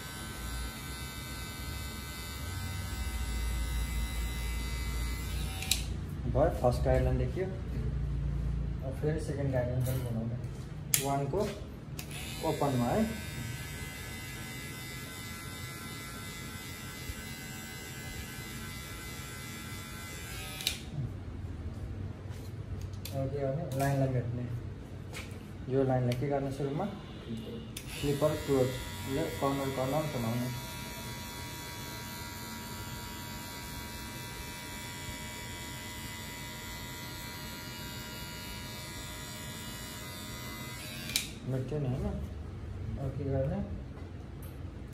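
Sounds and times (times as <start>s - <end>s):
electric hair clipper buzzing: 0.0s - 6.1s, 12.0s - 21.0s, 27.8s - 41.5s.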